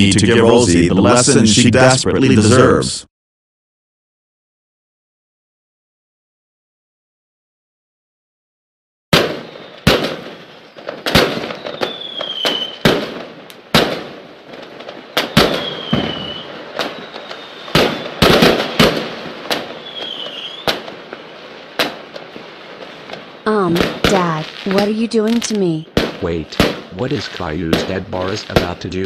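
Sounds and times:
fireworks bangs with crackle: 9.1s - 29.0s
whistles gliding down in pitch: 15.6s - 17.7s.

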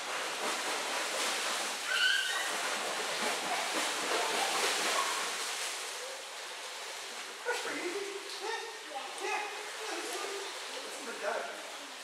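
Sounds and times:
swimmer kicking splashes: 0.0s - 11.6s.

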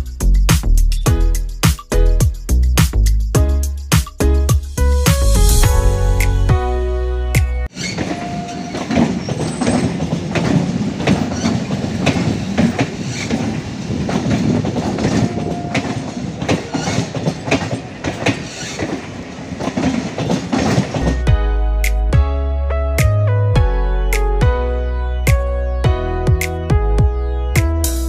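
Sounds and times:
background music: 0.0s - 7.7s, 21.0s - 28.0s
train wheels clickety-clack: 7.7s - 21.3s
electric train rumble: 7.7s - 21.4s.

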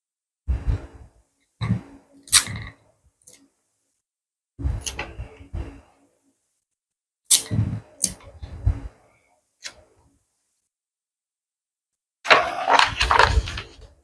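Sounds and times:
paper rustling and crinkling: 12.3s - 14.0s.

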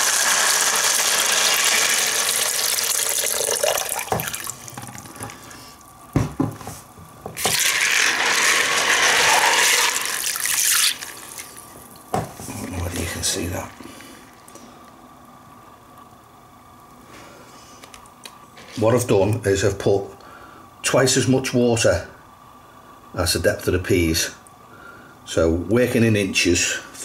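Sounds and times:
water pouring into plastic bucket: 0.0s - 5.3s, 7.4s - 11.6s.

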